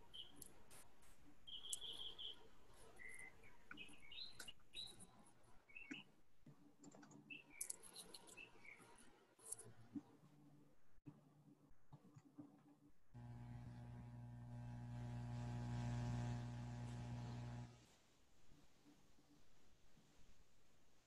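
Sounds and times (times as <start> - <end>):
faint bird chirps: 0.1 - 0.5, 1.4 - 6.2.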